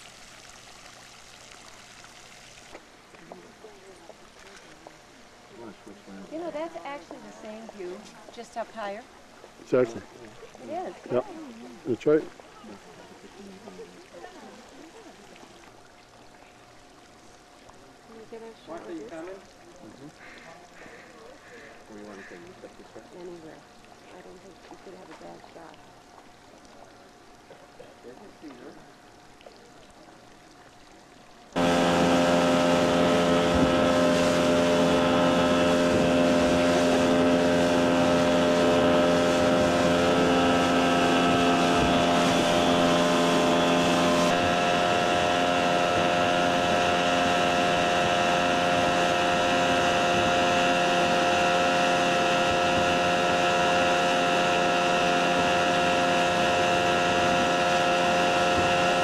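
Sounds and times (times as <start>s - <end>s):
wind and water rushing: 0.0s - 16.0s, 31.4s - 59.0s
motorboat engine running: 0.0s - 59.0s.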